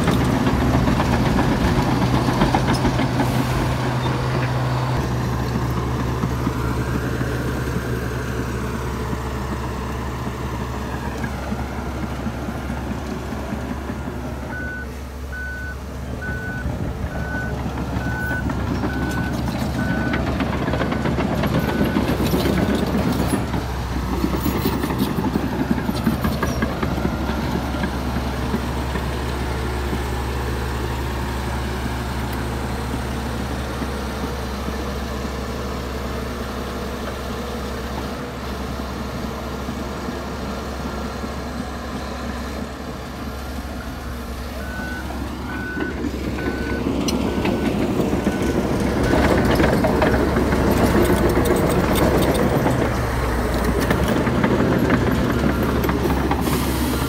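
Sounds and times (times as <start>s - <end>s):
bulldozer diesel engine running: 0.0s - 57.0s
reversing alarm beeping: 14.5s - 20.3s, 43.8s - 50.3s.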